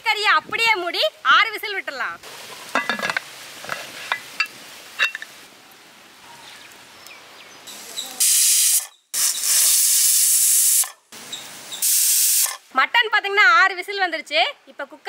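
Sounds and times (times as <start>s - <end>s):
pressure cooker steam hissing: 8.2s - 11.0s, 11.7s - 12.6s.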